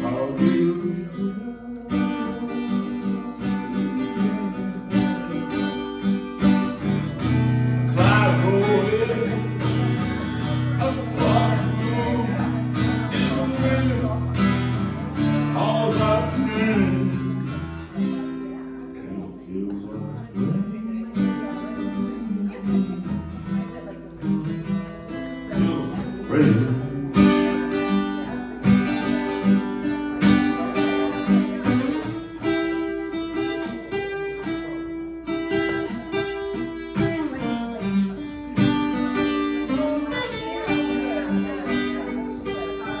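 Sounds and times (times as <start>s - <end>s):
acoustic guitar playing: 0.0s - 43.0s.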